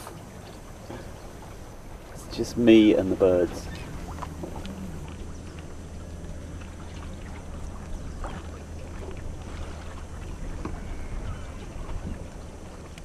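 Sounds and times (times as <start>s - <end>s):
wind and water rushing: 0.0s - 13.0s.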